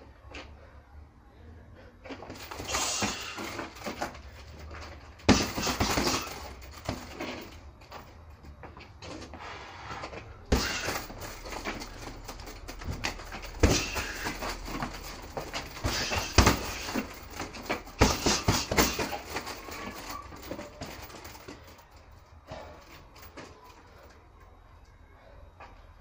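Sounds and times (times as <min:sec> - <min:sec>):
gloves thudding on punching bag: 0:04.8 - 0:07.5, 0:10.5 - 0:21.0.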